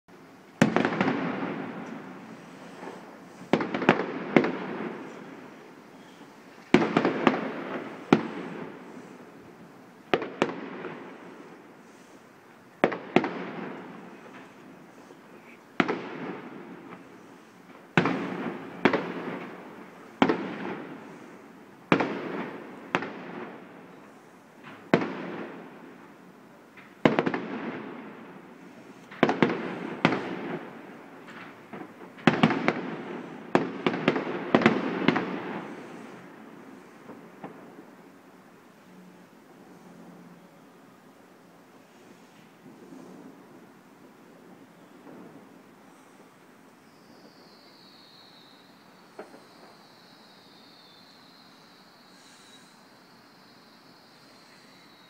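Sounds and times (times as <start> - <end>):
firework shells bursting: 0.6 - 38.0, 44.8 - 50.6.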